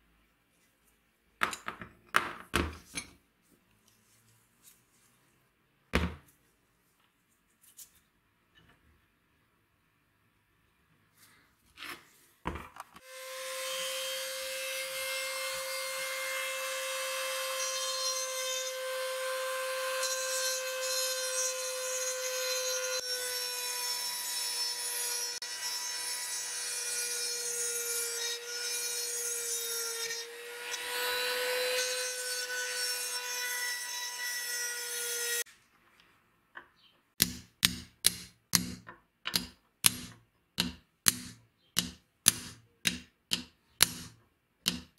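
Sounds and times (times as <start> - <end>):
hammer tapping on a punch: 37.2 - 44.9.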